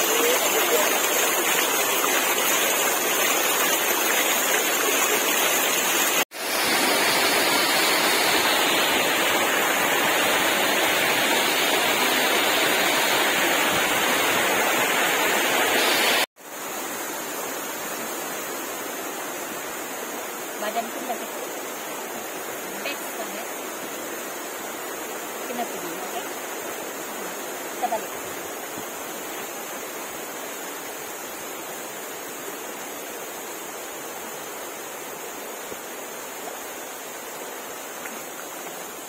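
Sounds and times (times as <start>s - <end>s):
water rushing over stony stream bed: 0.0s - 39.0s.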